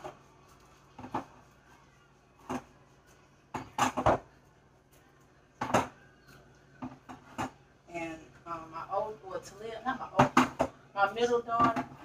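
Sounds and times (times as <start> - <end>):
groceries knocking on shelves: 3.5 - 4.4, 5.6 - 6.0, 10.1 - 10.8, 11.5 - 12.0.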